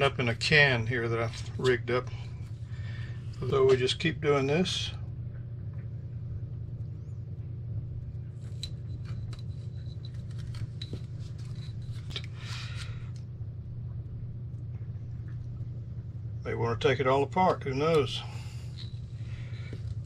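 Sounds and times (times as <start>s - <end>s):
steady low hum: 0.0s - 20.0s
tape crackling and clicking: 8.1s - 13.4s.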